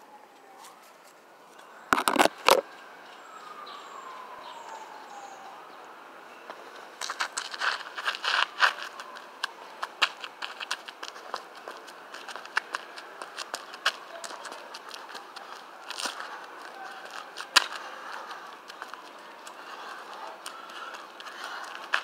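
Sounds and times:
sneakers tapping on asphalt: 0:06.5 - 0:22.0.

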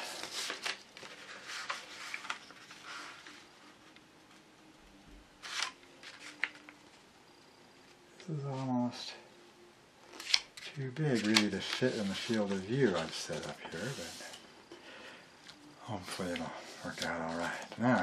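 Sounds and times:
sharp paper crackles: 0:00.0 - 0:03.1, 0:10.1 - 0:14.1
paper folding and rustling: 0:00.0 - 0:04.0, 0:05.4 - 0:06.8, 0:10.1 - 0:14.4, 0:15.5 - 0:18.0.

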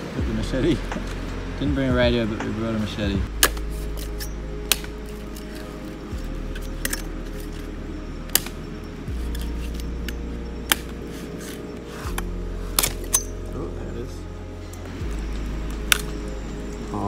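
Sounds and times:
background music: 0:00.0 - 0:17.0
machete chopping coconut husk: 0:03.3 - 0:05.6, 0:08.3 - 0:08.6, 0:10.6 - 0:13.4.

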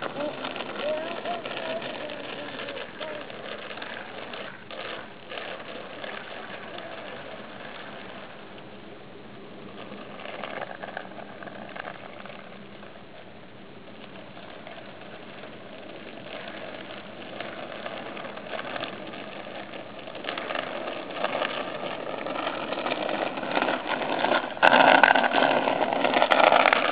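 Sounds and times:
bicycle rattling on asphalt: 0:00.0 - 0:26.9.

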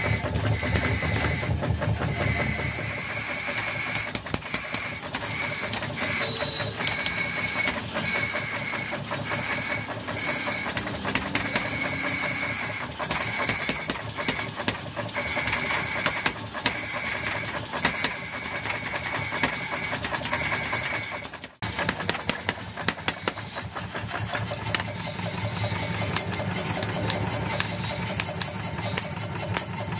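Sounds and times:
power hammer pounding hot metal: 0:00.0 - 0:29.9.

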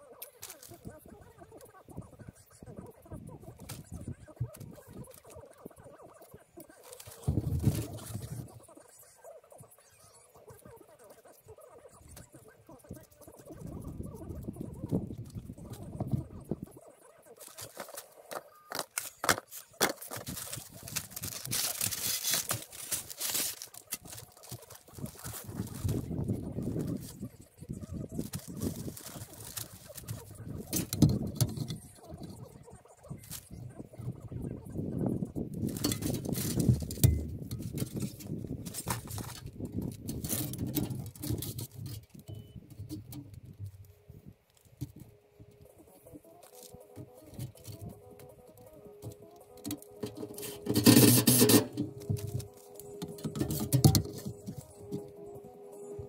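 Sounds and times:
plastic sheeting crinkling: 0:00.2 - 0:01.0, 0:06.7 - 0:08.5, 0:17.4 - 0:32.3, 0:35.6 - 0:42.2, 0:42.8 - 0:56.0
plastic pipe knocking and clinking: 0:36.7 - 0:37.9.

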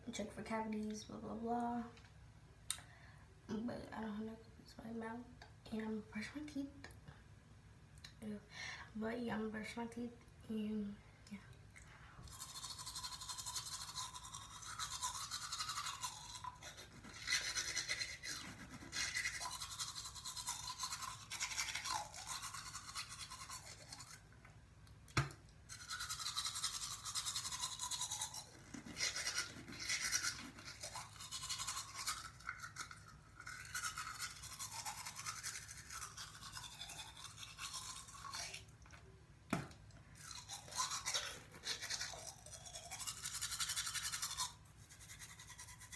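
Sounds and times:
toothbrush scrubbing teeth: 0:12.2 - 0:24.4, 0:25.7 - 0:39.1, 0:40.2 - 0:45.9.

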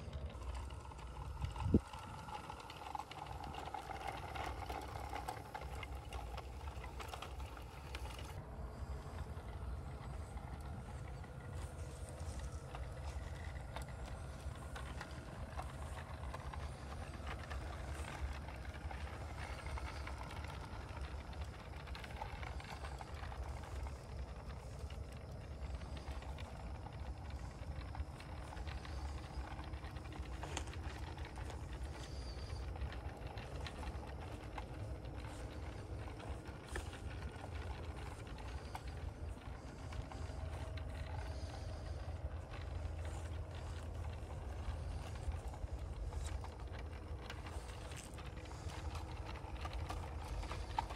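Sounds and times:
low steady hum: 0:00.0 - 0:50.9
model train wheels clattering: 0:00.0 - 0:50.9.

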